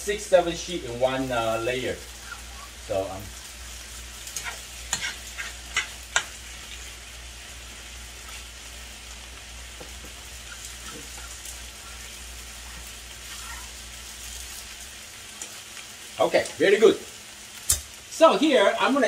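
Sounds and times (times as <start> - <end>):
vegetables sizzling in a frying pan: 0.0 - 19.0.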